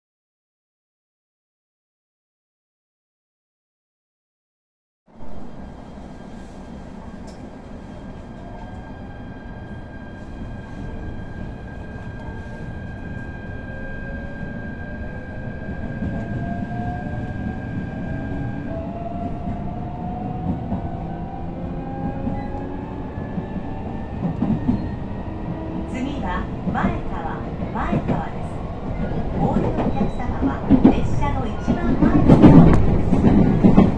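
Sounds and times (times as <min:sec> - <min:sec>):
train running gear rumble: 0:15.8 - 0:33.9
train wheel knocks: 0:29.5 - 0:33.9.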